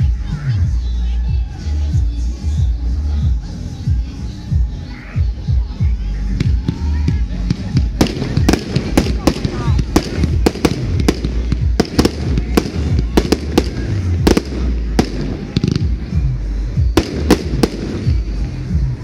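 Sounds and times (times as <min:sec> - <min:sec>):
fireworks bangs: 0:06.4 - 0:18.6.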